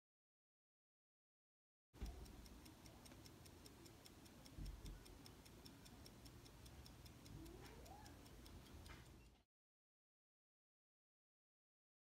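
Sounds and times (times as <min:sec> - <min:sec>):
pocket watch ticking: 0:02.0 - 0:09.4.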